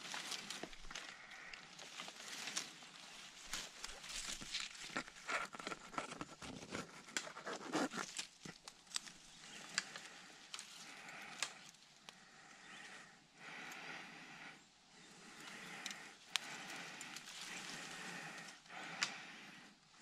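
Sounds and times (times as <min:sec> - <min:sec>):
bush branches rustling and crackling: 0:00.0 - 0:13.9, 0:15.0 - 0:19.6.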